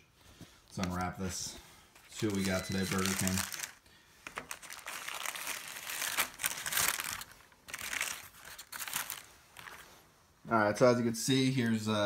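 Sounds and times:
paper wrapper crinkling: 0.7s - 1.2s, 2.0s - 10.0s.

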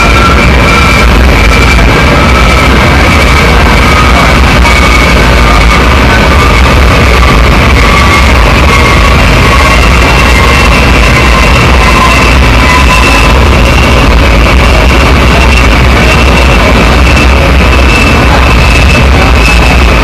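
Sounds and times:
electronic noise music: 0.0s - 20.0s
faint drifting tones: 0.0s - 20.0s
low drone: 0.0s - 20.0s.

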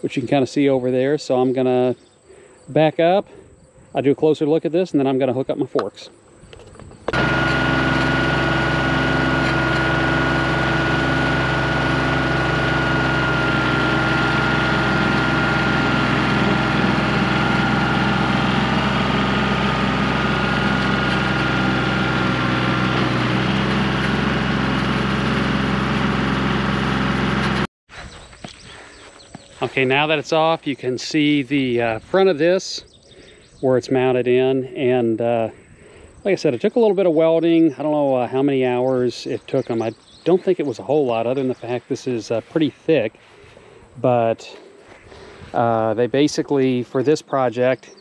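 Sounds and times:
tractor diesel engine running: 7.0s - 27.7s.

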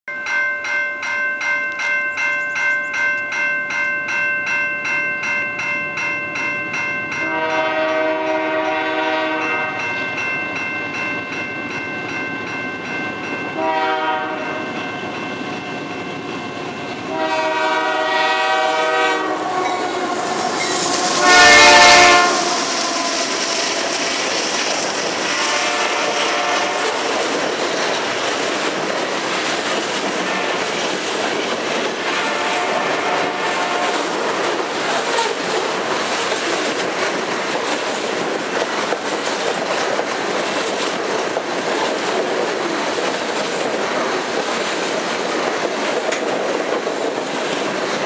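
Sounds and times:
bell ringing steadily: 0.1s - 7.6s, 9.4s - 13.6s, 14.4s - 17.1s
locomotive air horn blasts: 7.2s - 9.9s, 13.5s - 14.7s, 17.0s - 24.1s, 25.2s - 27.2s, 32.1s - 34.2s.

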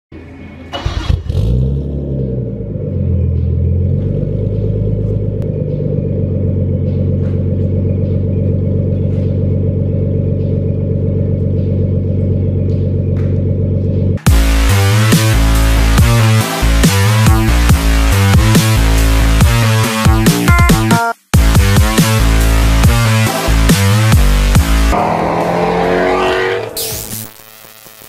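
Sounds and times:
car engine idling: 0.5s - 19.4s.

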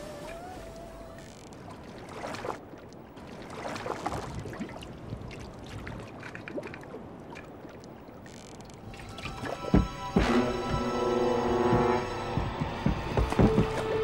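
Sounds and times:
water lapping against boat hull: 0.0s - 14.0s
small knocks: 9.4s - 14.0s.

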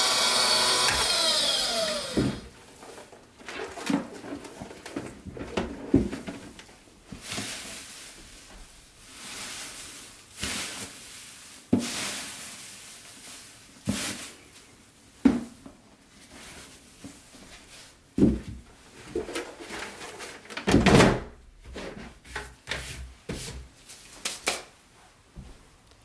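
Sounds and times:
paper shreds rustling: 0.0s - 3.0s.

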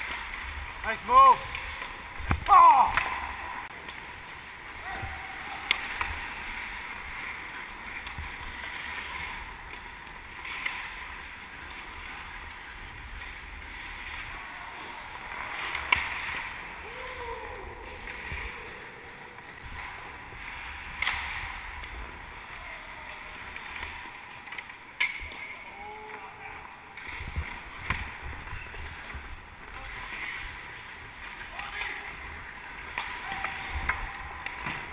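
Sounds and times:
hockey sticks and puck clacking: 0.0s - 16.8s, 17.8s - 34.9s
skate blades scraping ice: 5.6s - 16.8s, 26.9s - 34.9s.

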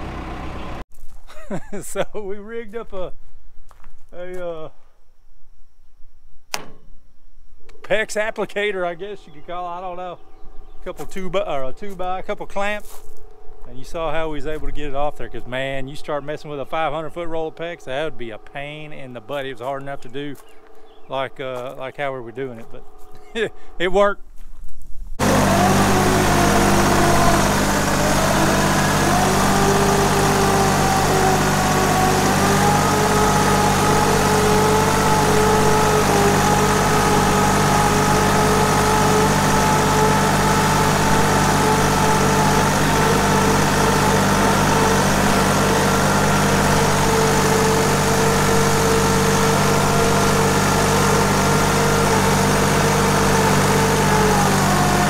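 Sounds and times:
tractor engine running: 0.0s - 0.9s, 25.2s - 55.0s
wavering whine: 7.0s - 12.0s, 12.9s - 23.9s, 25.1s - 55.0s.

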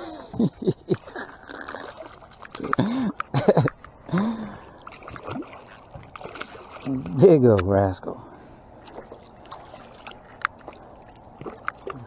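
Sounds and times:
fish splashing at water surface: 4.1s - 7.1s.

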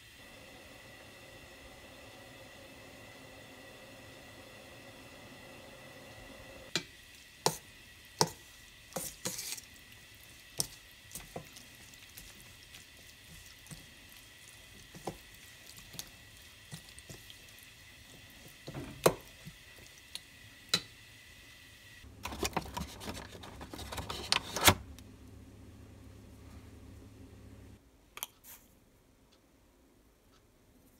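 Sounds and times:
metal spoon stirring in bowl: 8.2s - 17.6s
clattering and rustling: 22.2s - 24.8s.

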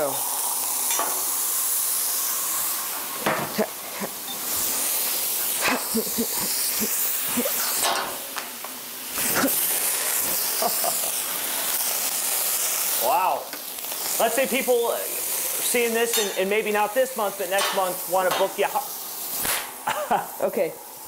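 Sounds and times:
food sizzling on griddle: 0.0s - 21.0s
metal spatula clinking on steel: 16.1s - 16.4s.

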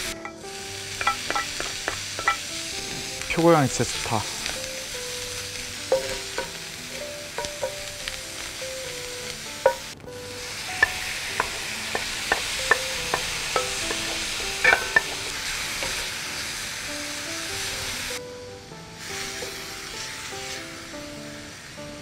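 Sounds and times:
food sizzling in a wok: 0.0s - 22.0s
wooden spatulas clacking on pan: 1.0s - 2.4s, 5.9s - 6.6s, 7.4s - 7.9s, 9.6s - 9.9s, 10.8s - 16.0s.

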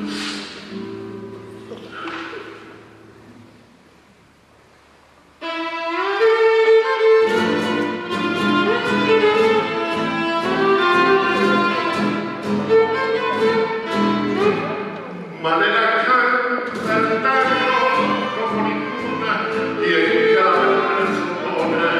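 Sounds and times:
classical guitar strummed chords: 0.0s - 3.8s, 5.4s - 15.2s, 16.6s - 21.9s
violin playing: 5.4s - 15.0s, 16.8s - 21.9s.

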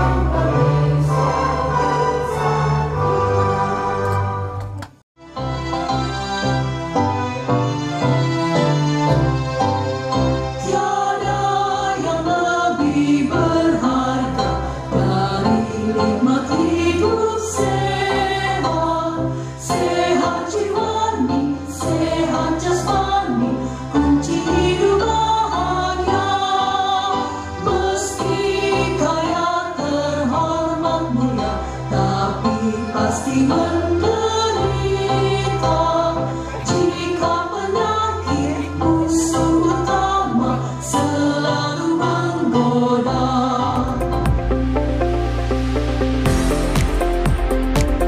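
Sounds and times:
group singing in unison: 0.0s - 4.6s, 10.6s - 44.2s
instrumental accompaniment: 0.0s - 48.0s.

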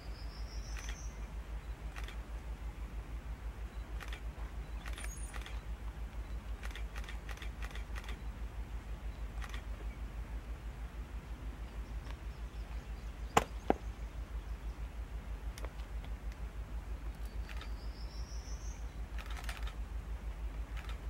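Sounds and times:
distant diesel locomotive rumble: 0.0s - 21.0s
faint ticks: 0.7s - 1.1s, 1.9s - 2.2s, 4.0s - 8.2s
sharp clicks: 0.7s - 1.1s, 1.9s - 2.2s, 4.0s - 5.6s, 6.2s - 8.2s, 9.4s - 9.8s, 17.1s - 17.8s, 19.1s - 19.8s, 20.7s - 21.0s.

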